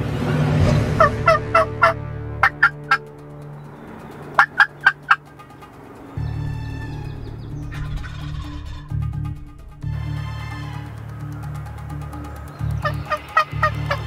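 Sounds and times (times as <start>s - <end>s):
turkey calling: 1.0s - 3.0s, 4.4s - 9.0s, 12.8s - 14.0s
low rumble: 6.2s - 14.0s.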